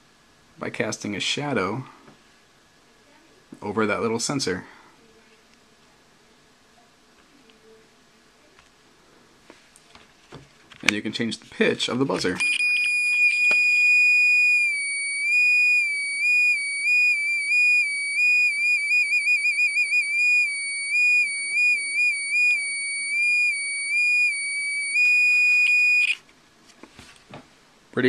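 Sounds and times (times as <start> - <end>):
electronic buzzer tone: 12.4 - 26.2.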